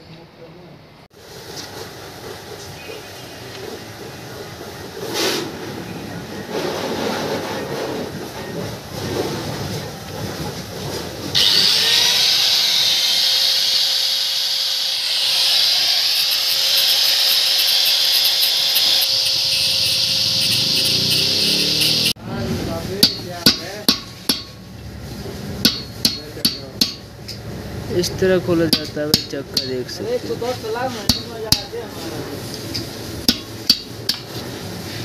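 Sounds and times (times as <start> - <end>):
angle grinder whining: 11.3 - 22.2.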